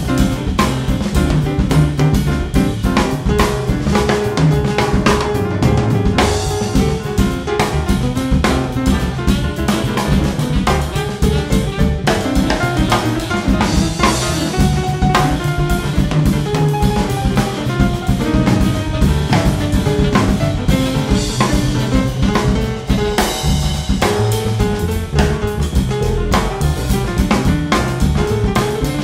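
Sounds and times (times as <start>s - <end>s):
busy drum hits: 0.0s - 29.0s
jazz quartet playing: 0.0s - 29.0s.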